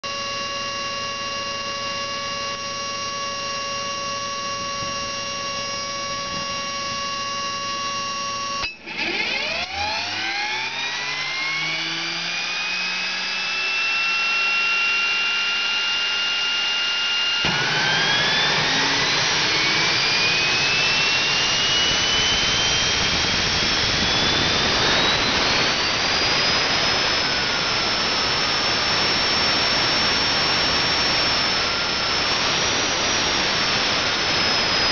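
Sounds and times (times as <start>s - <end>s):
turbine engine whine: 0.0s - 34.9s.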